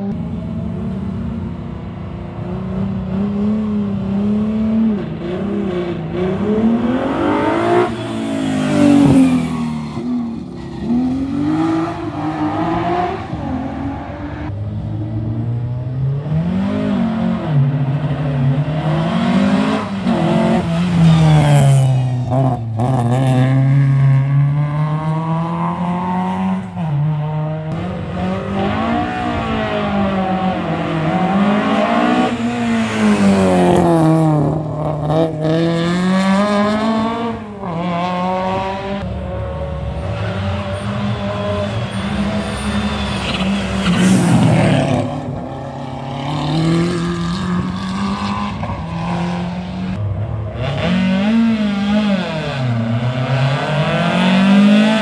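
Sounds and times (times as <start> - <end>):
car engine revving hard: 50.6 - 55.0.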